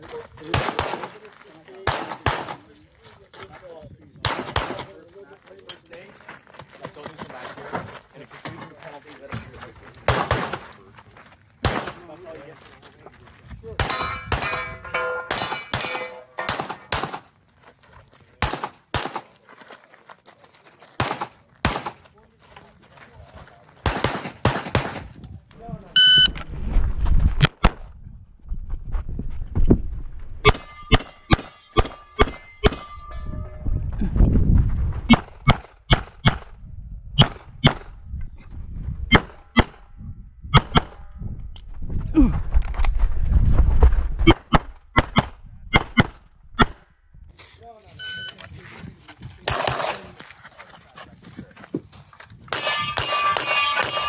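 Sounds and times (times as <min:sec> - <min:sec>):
pistol shots: 0:00.5 - 0:01.2, 0:01.8 - 0:02.7, 0:04.2 - 0:05.0, 0:10.1 - 0:10.6, 0:11.6 - 0:12.1, 0:13.8 - 0:17.3, 0:18.4 - 0:19.3, 0:21.0 - 0:22.0, 0:23.8 - 0:25.1, 0:30.5 - 0:32.8, 0:49.4 - 0:50.1.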